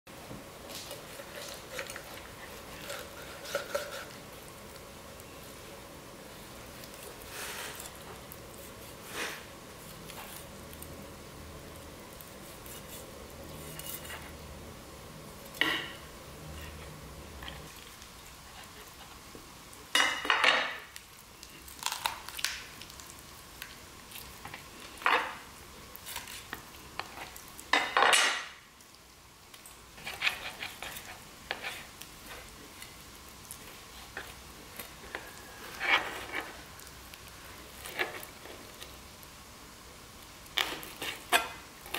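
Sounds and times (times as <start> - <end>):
knife on wooden cutting board: 0.9 - 4.1.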